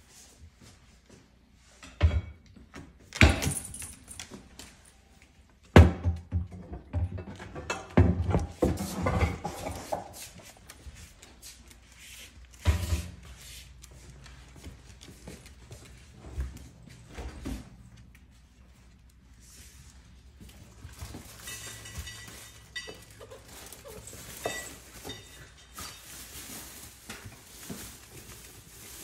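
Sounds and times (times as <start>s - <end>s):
dogs clattering on tiled floor: 6.3s - 11.0s, 20.5s - 28.6s.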